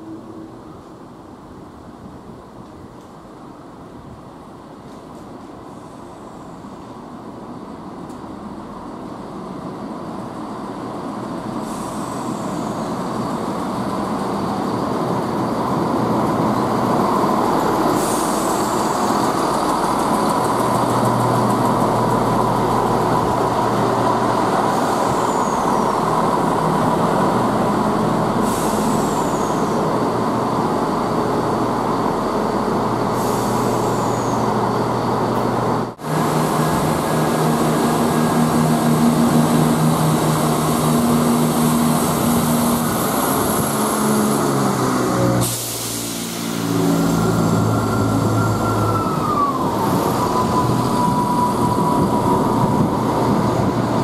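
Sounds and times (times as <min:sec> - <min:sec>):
diesel train engines: 0:00.0 - 0:54.0
high squeals: 0:46.6 - 0:53.7.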